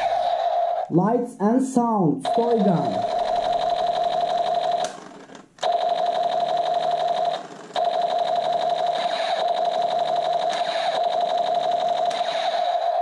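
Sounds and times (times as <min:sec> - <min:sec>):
toy blaster buzzy electronic tone: 0:05.6 - 0:13.0.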